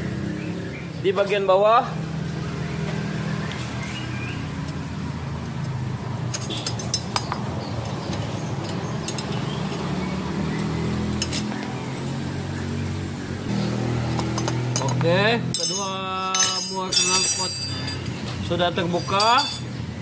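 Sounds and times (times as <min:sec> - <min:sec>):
wrench clinking on metal nuts: 0:06.3 - 0:08.0, 0:14.3 - 0:19.8.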